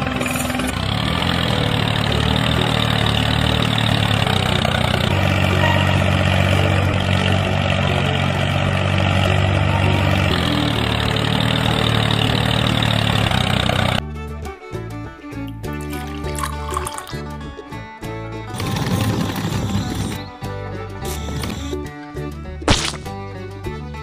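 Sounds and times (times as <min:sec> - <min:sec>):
model tractor engine drone: 0:00.0 - 0:14.0, 0:18.5 - 0:20.3, 0:21.0 - 0:21.8.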